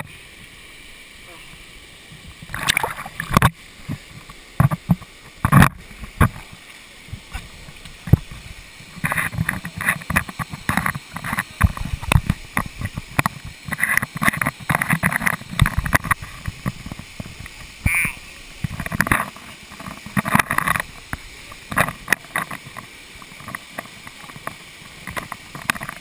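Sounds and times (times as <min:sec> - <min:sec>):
waterfall rushing: 0:00.0 - 0:26.0
knocks and scrapes on camera housing: 0:04.6 - 0:06.4.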